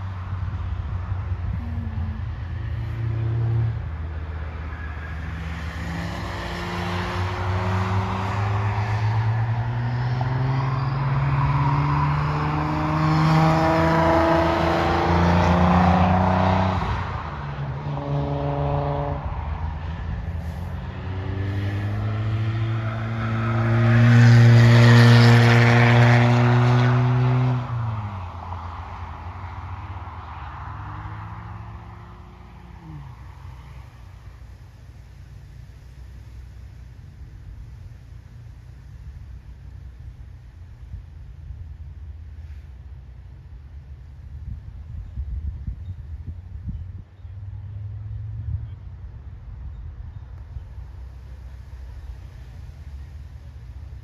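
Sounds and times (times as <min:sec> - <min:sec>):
car engine accelerating hard: 0:01.0 - 0:35.0.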